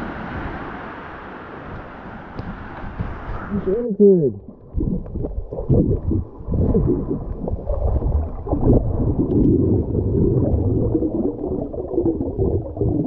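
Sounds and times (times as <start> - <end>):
underwater water gurgling: 4.2 - 13.0.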